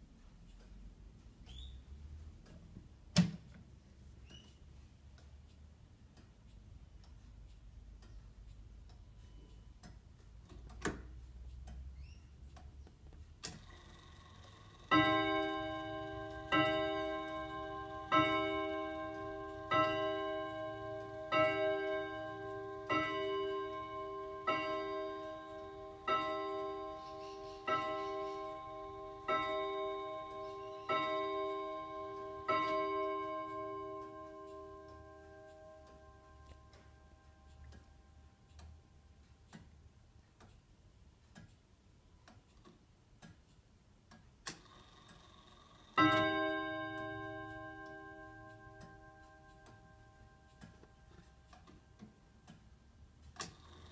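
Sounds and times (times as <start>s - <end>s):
sharp clock clicks: 0.0s - 53.9s
clock striking: 13.6s - 38.4s, 44.6s - 52.4s.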